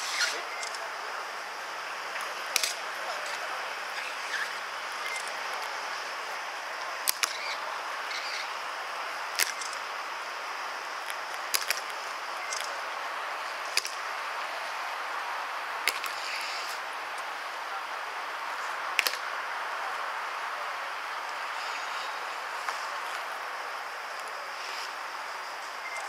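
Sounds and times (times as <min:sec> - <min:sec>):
outdoor background hiss: 0:00.0 - 0:26.0.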